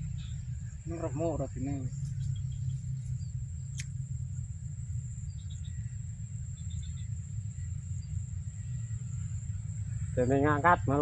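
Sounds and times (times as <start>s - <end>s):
high-pitched insect drone: 0.0s - 11.0s
low rumble: 0.0s - 11.0s
sharp click: 3.7s - 4.0s.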